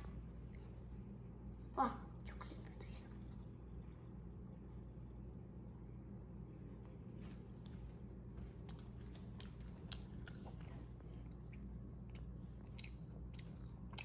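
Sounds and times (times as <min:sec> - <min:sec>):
steady low hum: 0:00.0 - 0:14.0
faint chewing: 0:07.2 - 0:14.0.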